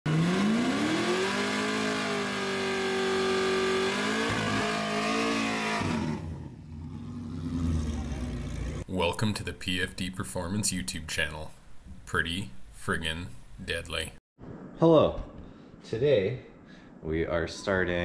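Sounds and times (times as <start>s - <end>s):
car engine revving: 0.1s - 8.9s.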